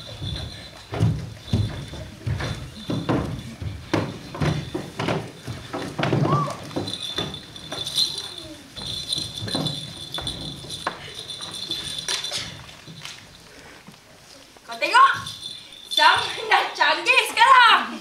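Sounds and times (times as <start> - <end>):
wooden chairs knocking on floor: 0.0 - 11.7
footsteps: 0.0 - 16.8.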